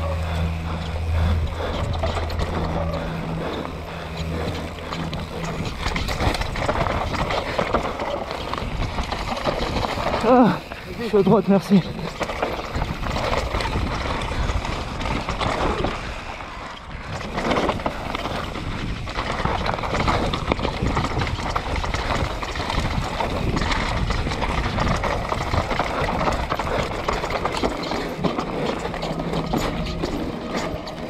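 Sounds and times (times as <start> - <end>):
tyres on loose gravel: 0.0 - 31.0
bike knocks and rattles: 1.6 - 16.2, 17.0 - 31.0.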